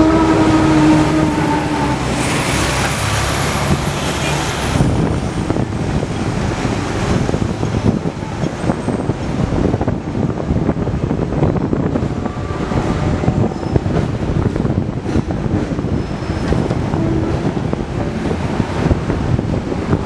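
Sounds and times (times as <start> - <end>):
tram horn: 0.0 - 4.8, 15.8 - 19.9
tram wheels rumbling on rails: 0.0 - 20.0.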